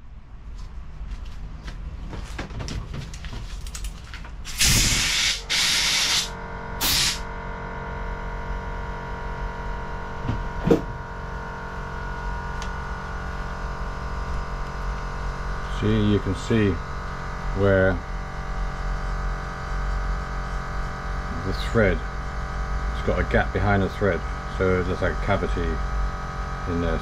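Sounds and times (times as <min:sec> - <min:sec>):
electrical hum with faint whine: 0:00.0 - 0:27.0
loud hissing blasts: 0:04.5 - 0:07.3.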